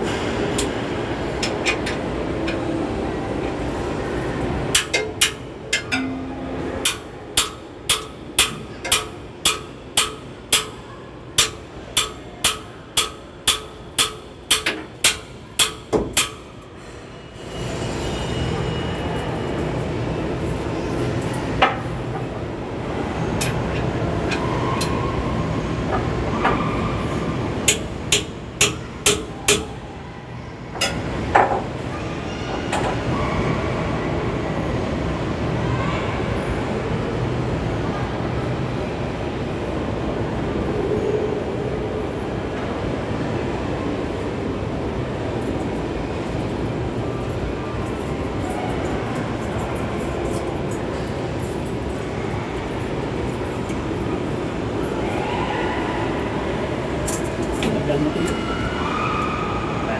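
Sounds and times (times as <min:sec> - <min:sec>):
hammer striking metal: 0:04.7 - 0:10.8, 0:11.4 - 0:16.6, 0:27.7 - 0:29.8.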